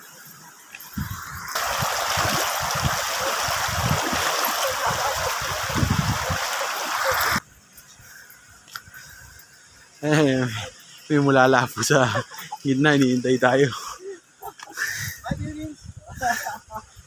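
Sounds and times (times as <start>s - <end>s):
stream rushing over stones: 1.0s - 7.4s.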